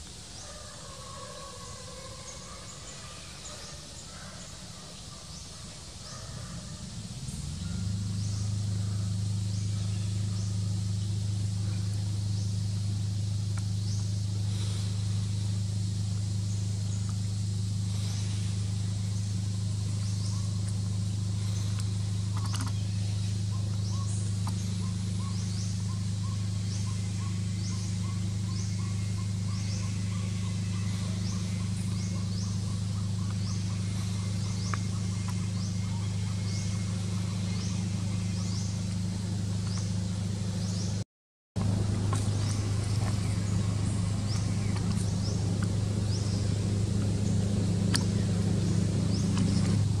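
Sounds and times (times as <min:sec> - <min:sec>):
steady low hum: 0:00.0 - 0:41.0, 0:41.6 - 0:50.0
faint quick ticking calls: 0:17.9 - 0:41.0.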